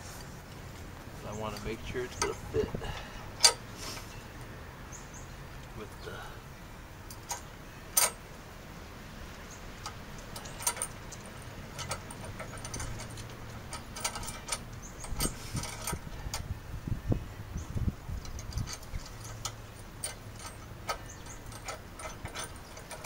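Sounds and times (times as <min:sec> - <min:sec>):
metal hardware clinking: 0:03.3 - 0:04.2, 0:07.1 - 0:08.2, 0:09.7 - 0:16.5, 0:18.2 - 0:23.0.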